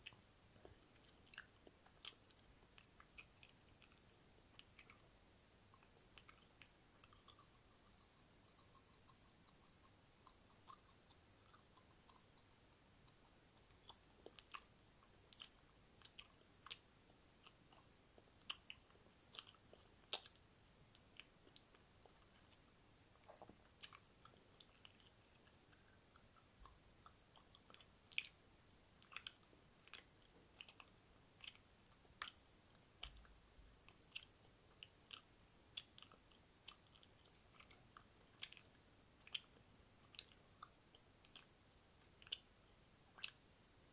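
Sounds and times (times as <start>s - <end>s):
wet lip and tongue clicks: 0.0s - 42.5s, 43.1s - 43.5s.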